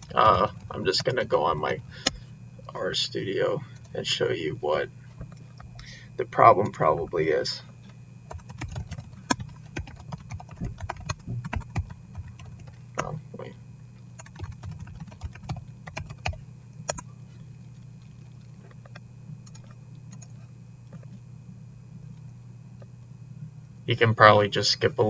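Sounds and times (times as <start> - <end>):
steady low hum: 0.0 - 25.0
typing on computer keyboard: 8.3 - 12.8, 14.2 - 17.0.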